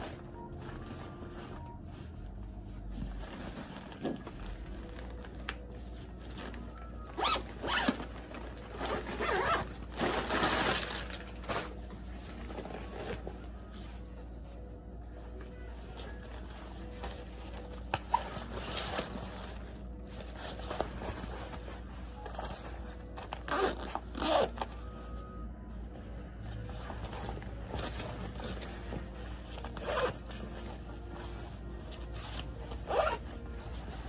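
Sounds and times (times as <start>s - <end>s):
fabric rustling: 0.0s - 34.0s
bag zippers being pulled: 7.2s - 8.0s, 8.8s - 10.9s, 23.2s - 24.9s, 27.4s - 30.9s, 32.6s - 33.5s.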